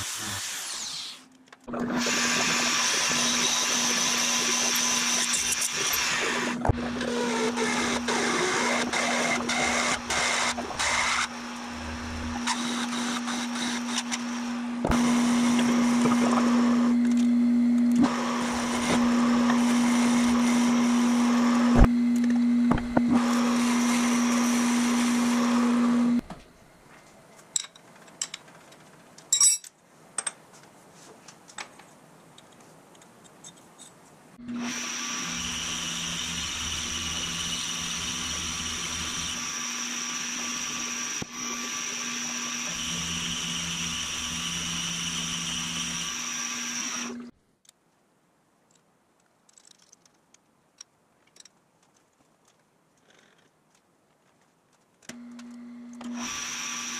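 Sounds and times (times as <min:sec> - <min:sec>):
cutter hissing in metal: 0:00.0 - 0:01.3
milling machine motor hum: 0:01.7 - 0:26.2, 0:34.4 - 0:47.3.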